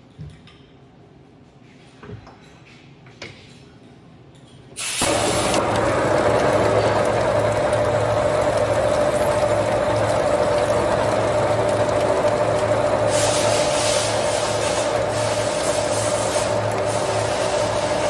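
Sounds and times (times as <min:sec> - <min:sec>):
boring mill machining steel: 0:04.8 - 0:18.0.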